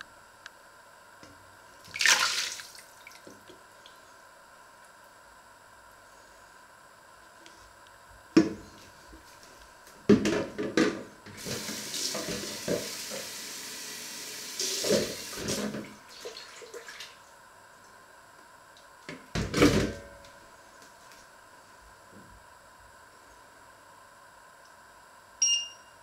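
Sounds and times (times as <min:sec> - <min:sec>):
kitchen tap running: 0:11.4 - 0:16.4.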